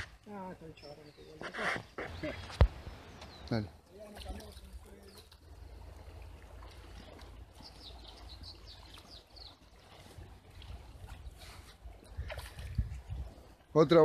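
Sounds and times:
bird chirping: 7.0s - 10.0s
wind rumble on microphone: 9.4s - 13.6s.

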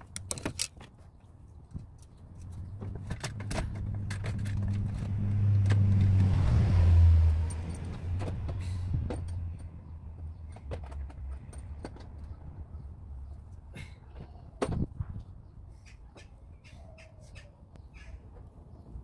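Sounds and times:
light clicks and rattles: 0.0s - 5.8s, 7.4s - 12.7s.

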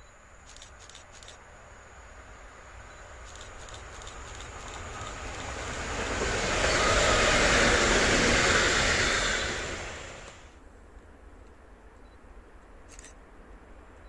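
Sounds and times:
train wheels rushing on rail: 0.4s - 10.6s.

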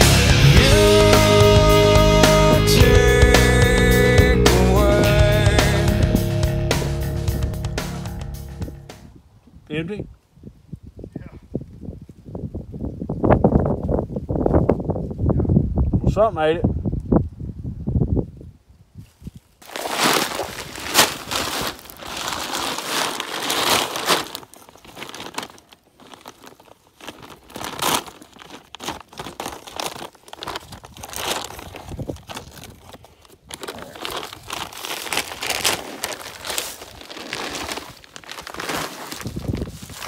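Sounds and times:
dry leaves rustling underfoot: 18.9s - 40.0s
paper sack crinkling: 19.6s - 40.0s.

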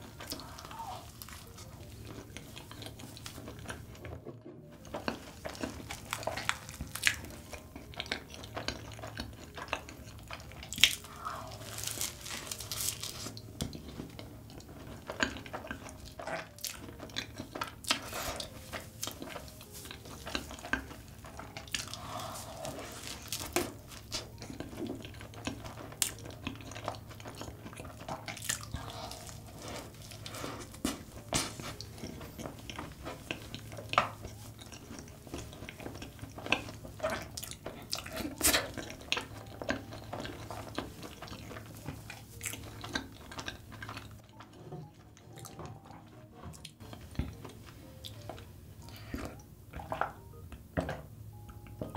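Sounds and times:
small crackles and clicks: 0.0s - 22.0s
chewing and biting pastry: 0.0s - 51.9s.

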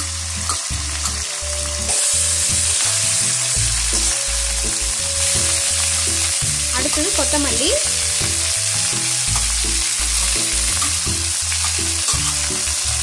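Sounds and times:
leaves sizzling in hot oil: 0.0s - 13.0s
metal spatula stirring: 9.4s - 12.7s.

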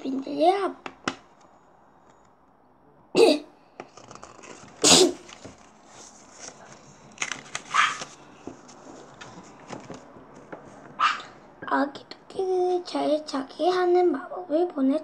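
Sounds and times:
paper crinkles: 3.8s - 10.8s
page turning: 3.8s - 10.9s
paper rustling: 3.8s - 11.0s
short sharp paper sounds: 3.9s - 9.8s.

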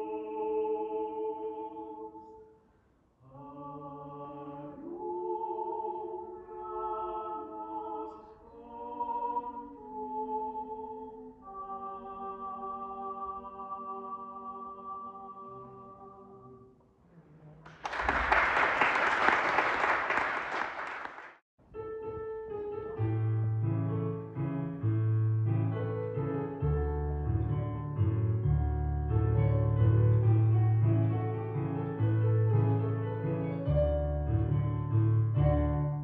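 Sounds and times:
vocal quartet holding chord: 0.0s - 2.6s, 3.2s - 16.7s
audience applause: 17.6s - 21.4s
piano with steady bass line: 21.7s - 36.0s.

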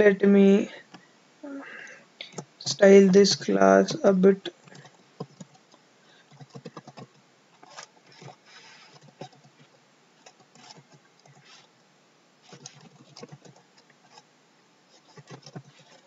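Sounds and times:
keyboard typing clicks: 6.3s - 7.2s.

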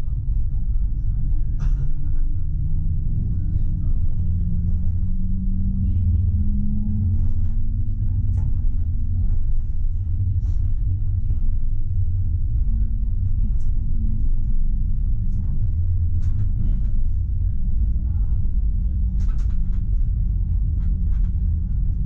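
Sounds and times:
low hum: 0.0s - 22.0s
tram rumbling along track: 0.0s - 22.0s.

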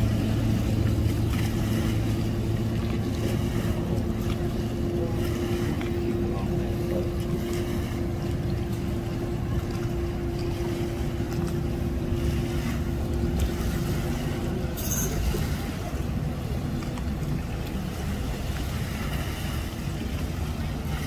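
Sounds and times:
engine idling hum: 0.0s - 21.0s.

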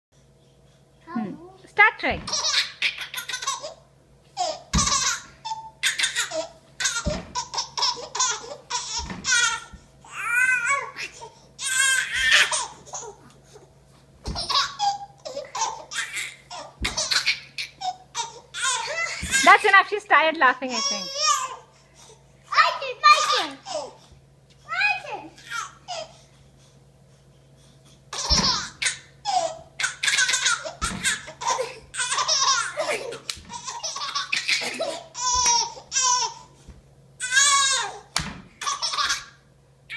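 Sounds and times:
baby laughing: 2.3s - 3.8s, 4.4s - 13.2s, 14.3s - 19.6s, 20.8s - 21.6s, 23.0s - 24.0s, 28.1s - 36.5s, 38.6s - 39.4s
dull thumps: 7.0s - 7.4s, 14.2s - 14.6s.

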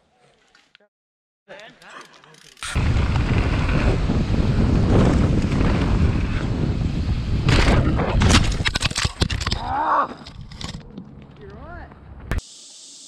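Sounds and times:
wind buffeting microphone: 2.8s - 9.3s.

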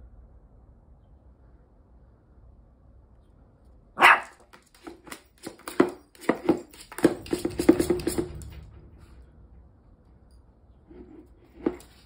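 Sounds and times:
toys knocking in a bucket: 4.5s - 8.7s.

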